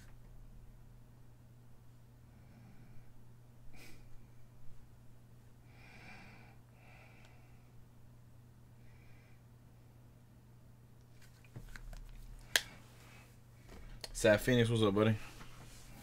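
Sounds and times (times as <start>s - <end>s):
low electrical hum: 0.0s - 16.0s
person breathing close: 5.6s - 7.8s.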